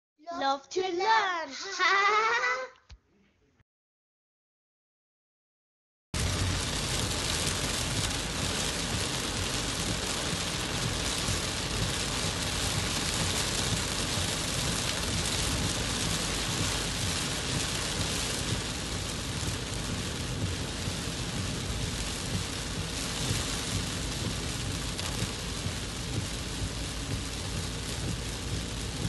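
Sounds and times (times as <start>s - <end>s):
heavy rain on car roof: 6.2s - 29.0s
low rumble: 6.2s - 29.0s.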